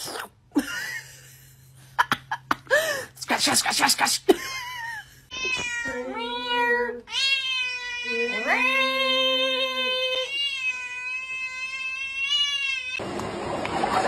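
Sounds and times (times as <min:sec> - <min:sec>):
cat yowling: 0:05.3 - 0:13.0.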